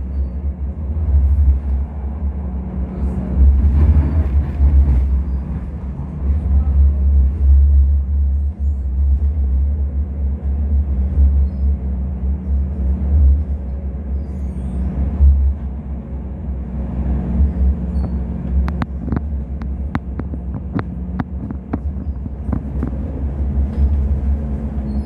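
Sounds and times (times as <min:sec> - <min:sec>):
constant hum: 0:00.0 - 0:25.0
tram wheels rumbling on rails: 0:00.0 - 0:25.0
sharp clicks and rattles: 0:18.1 - 0:23.0.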